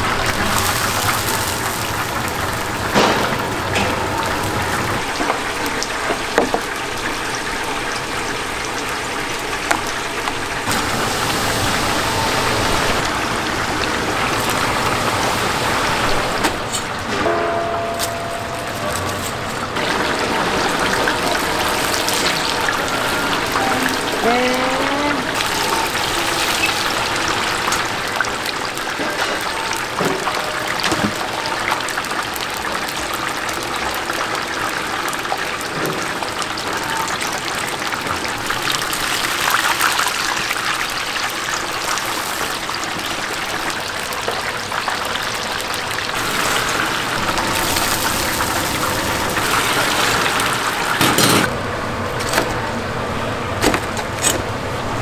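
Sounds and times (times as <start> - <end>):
chicken sizzling in hot oil: 0.0 - 17.0, 18.6 - 51.5.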